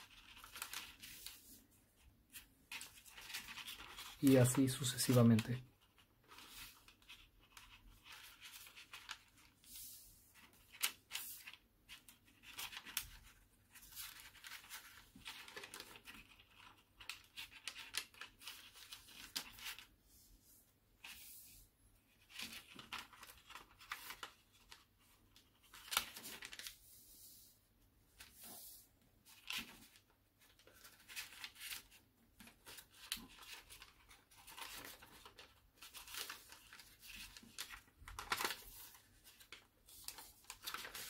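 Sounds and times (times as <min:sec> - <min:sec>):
paper rustling and crinkling: 0:00.0 - 0:20.3, 0:21.0 - 0:27.5, 0:28.1 - 0:41.0.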